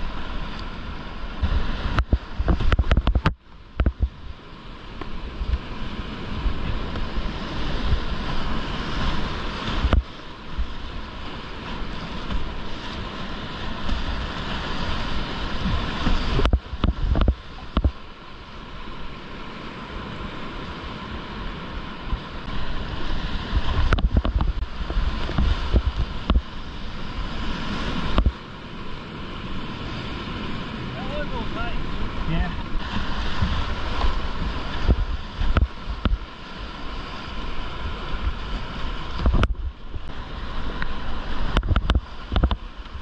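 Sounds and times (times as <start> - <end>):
low wind buffeting on microphone: 0.0 - 43.0
whitewater rushing and splashing: 0.0 - 43.0.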